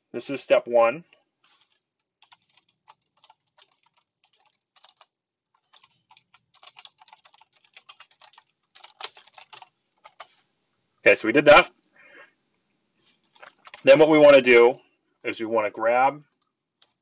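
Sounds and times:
computer keyboard typing: 1.6 - 10.4.

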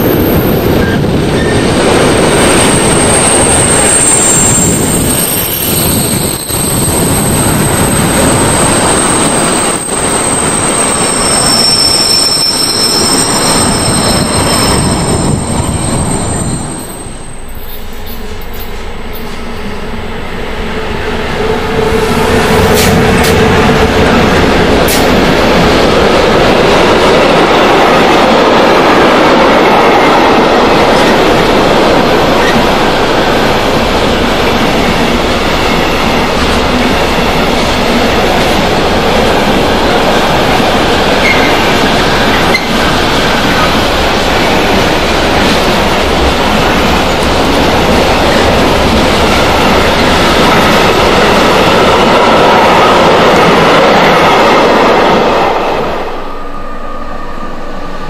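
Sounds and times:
freight train wheels rumbling: 0.0 - 58.0.

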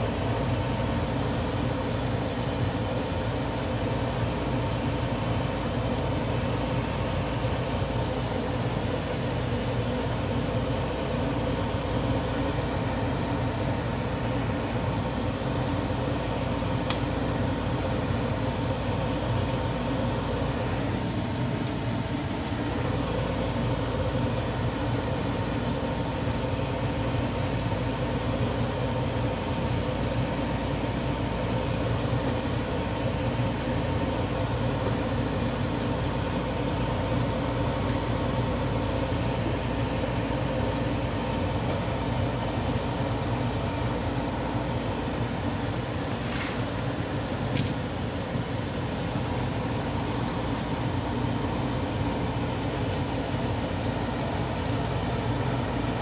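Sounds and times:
food frying in oil: 0.0 - 56.0
steady mechanical hum: 0.0 - 56.0.

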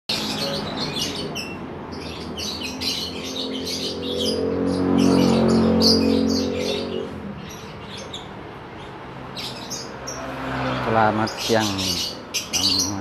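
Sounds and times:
caged birds chirping: 0.1 - 13.0.

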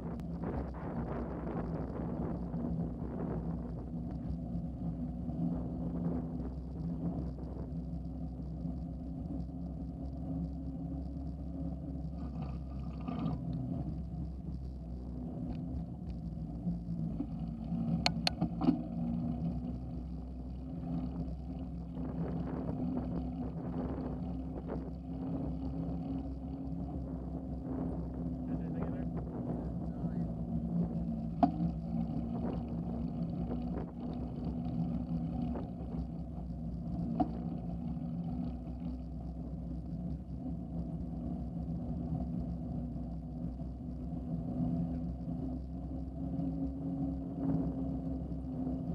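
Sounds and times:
sharp clicks or rattles: 18.0 - 18.5.

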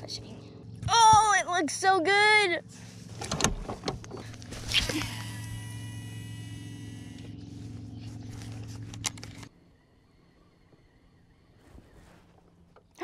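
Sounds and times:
boat motor humming: 0.0 - 13.0.

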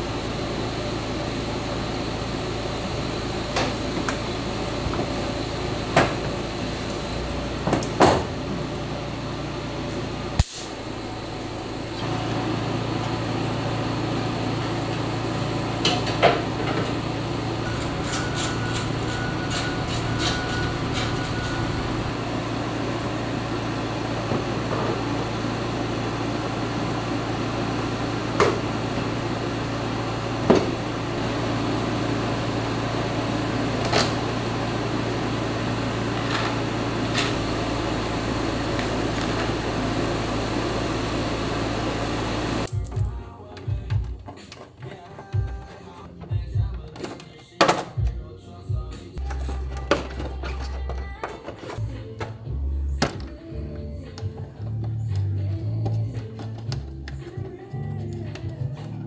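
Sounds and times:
steady background hum: 0.0 - 59.0.

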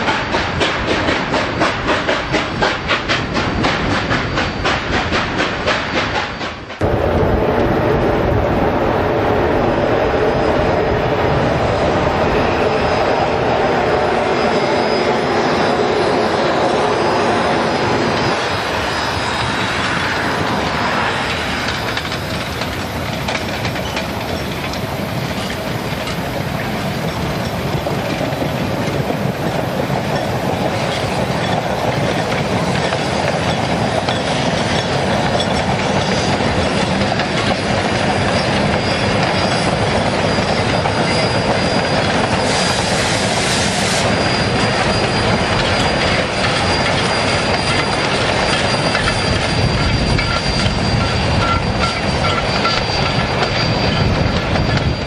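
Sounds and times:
train wheels clattering over rail joints: 0.0 - 6.8, 18.0 - 55.0
high wheel squeal: 10.2 - 55.0
steam hiss: 38.0 - 54.3.

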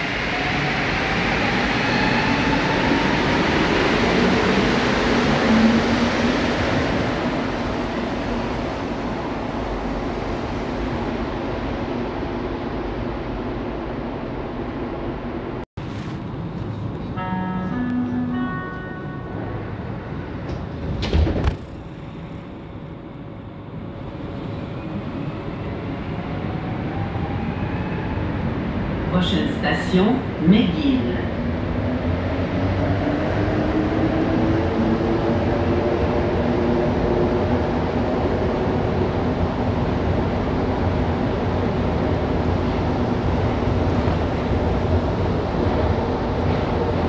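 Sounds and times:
train pulling out with rising whine: 0.0 - 21.0, 21.8 - 29.7
train doors closing with a thud: 17.5 - 22.3.

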